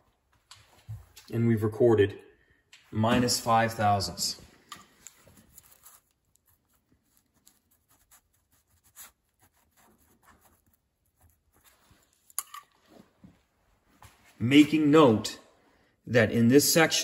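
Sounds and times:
pen scratching on paper: 0:05.7 - 0:11.8.

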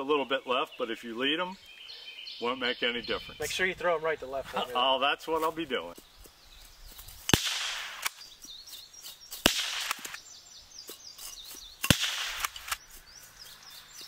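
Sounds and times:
faint birdsong chirps: 0:00.0 - 0:14.0
rifle shots: 0:07.3 - 0:08.2, 0:09.4 - 0:10.2, 0:11.8 - 0:12.8.

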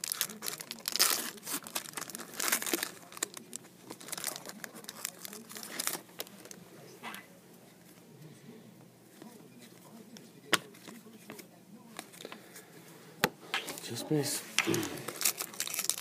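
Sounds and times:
wrapper crinkling and tearing: 0:00.0 - 0:06.6, 0:13.8 - 0:16.0.

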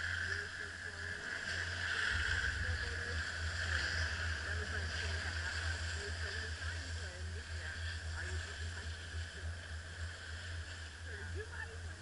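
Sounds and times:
chairlift rumble: 0:00.0 - 0:12.0
wind rushing: 0:02.0 - 0:06.1.

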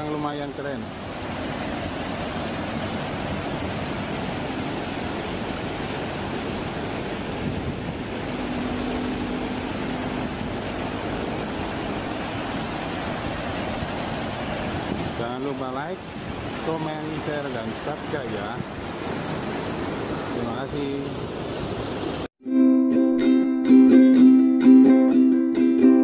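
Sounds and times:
water rushing down spillway: 0:00.0 - 0:22.3.

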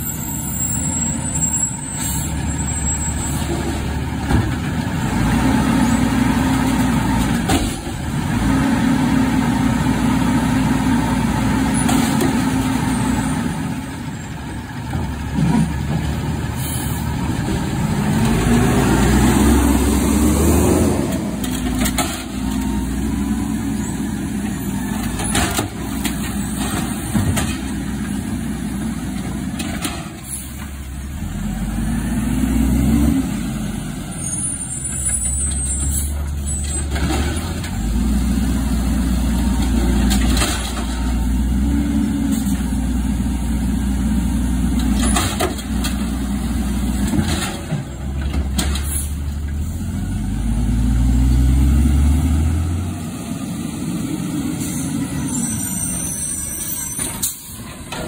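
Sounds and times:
diesel engine revving: 0:00.0 - 0:58.0
clanks and bangs of cart: 0:39.6 - 0:41.0, 0:47.0 - 0:49.1.

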